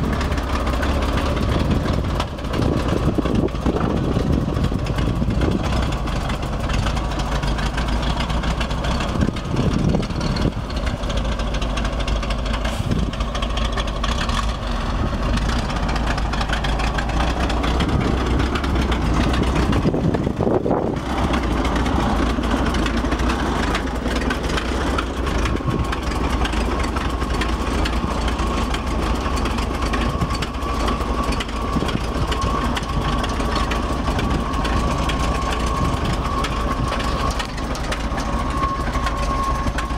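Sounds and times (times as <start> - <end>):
truck engine idling: 0.0 - 39.9
thin steady whine: 15.1 - 39.9.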